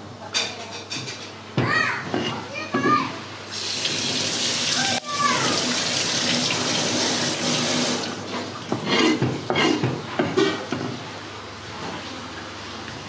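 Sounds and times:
tap water running into a sink: 3.5s - 8.8s.

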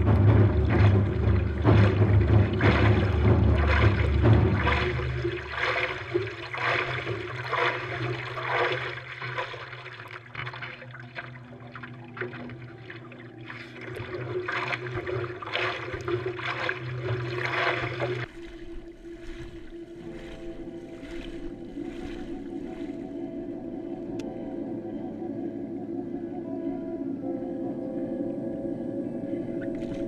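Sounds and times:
paddling hands splashing water: 0.0s - 23.1s.

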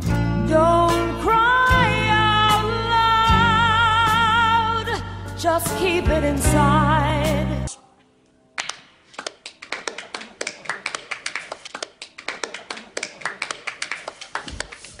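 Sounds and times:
people clapping hands: 8.6s - 15.0s.

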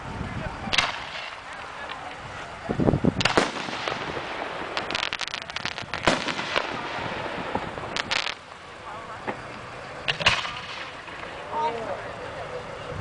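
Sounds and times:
firework bangs: 0.6s - 11.9s
rapid firework pops: 0.7s - 2.2s, 3.2s - 8.5s.

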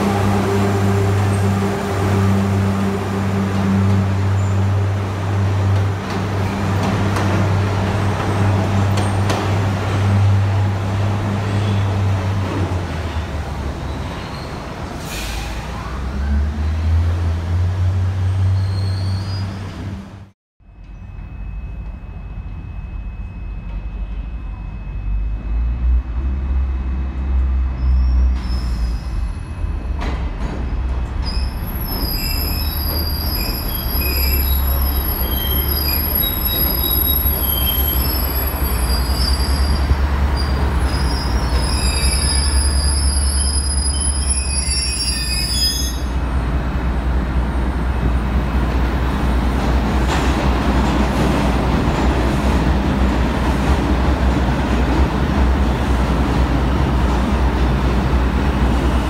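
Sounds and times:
low rail rumble: 0.0s - 59.0s
high-pitched wheel squeal: 18.5s - 19.7s, 31.2s - 46.2s.

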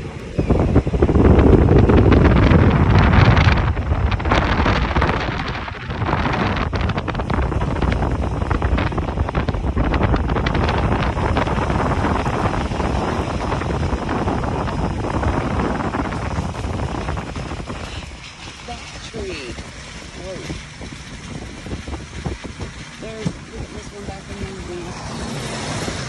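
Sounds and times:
wind buffeting microphone: 0.0s - 26.0s
small crackles: 12.2s - 25.2s.

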